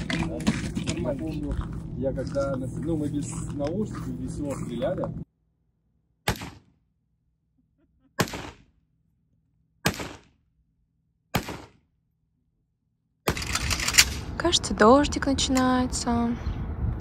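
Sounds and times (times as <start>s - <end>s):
gunshots with echo: 6.3s - 6.7s, 8.2s - 8.7s, 9.8s - 10.3s, 11.4s - 11.8s.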